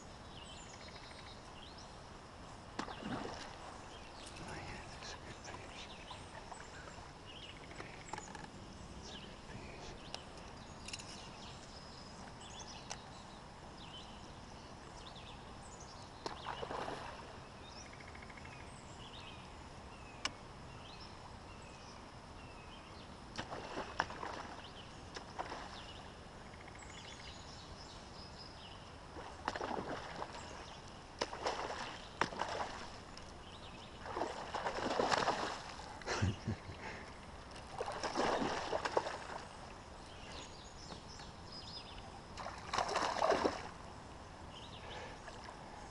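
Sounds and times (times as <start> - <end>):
faint bird chirps: 0.0 - 2.0, 2.8 - 23.1
fish splashing at water surface: 29.2 - 30.4, 31.2 - 33.0, 34.0 - 36.2, 37.6 - 39.4, 42.4 - 43.7.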